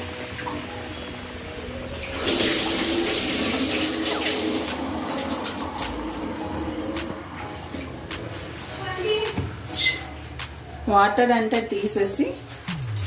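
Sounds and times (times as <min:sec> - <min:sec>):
water pouring and splashing: 0:01.8 - 0:09.6.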